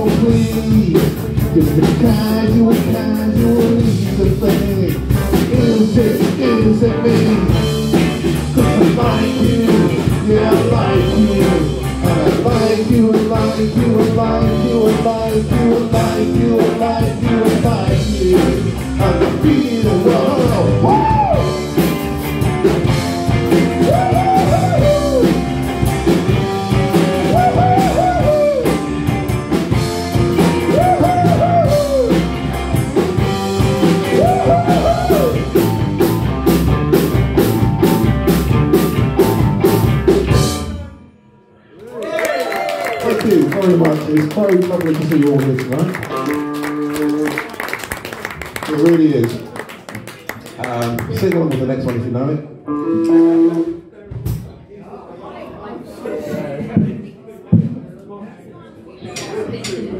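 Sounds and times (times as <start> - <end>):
rock music with singing: 0.0 - 41.0
bending guitar lead line: 0.0 - 41.1, 45.5 - 47.5, 52.6 - 53.8.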